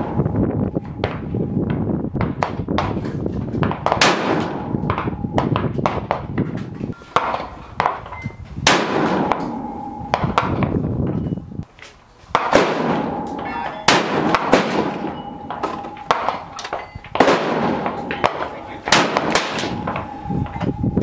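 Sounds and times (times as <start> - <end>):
rifle shots with echoes: 3.6 - 6.0, 8.6 - 10.4, 12.4 - 20.3.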